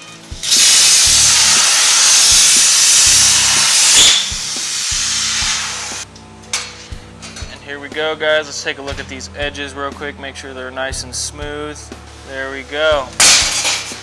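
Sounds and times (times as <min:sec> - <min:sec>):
plasma torch arc hissing: 0:00.1 - 0:06.1.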